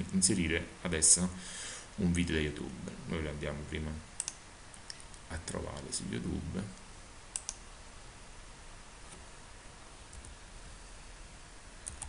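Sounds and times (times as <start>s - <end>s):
faint steady hiss: 0.0s - 12.0s
computer mouse clicks: 4.2s - 5.2s, 7.3s - 7.6s.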